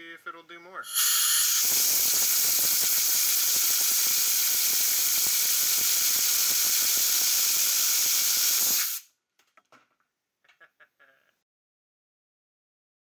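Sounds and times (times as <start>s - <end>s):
air blow gun hissing: 0.9s - 9.1s.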